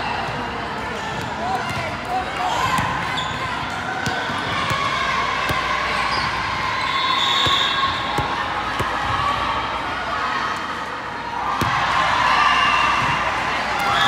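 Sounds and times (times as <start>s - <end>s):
crowd chatter echoing: 0.0s - 14.0s
volleyballs bouncing on gym floor: 3.9s - 5.7s, 7.4s - 9.2s.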